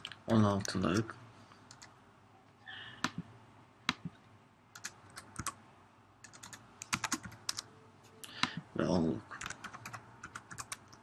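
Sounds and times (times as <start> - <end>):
computer keyboard keystrokes: 4.8 - 5.6, 6.2 - 7.6, 9.4 - 11.0.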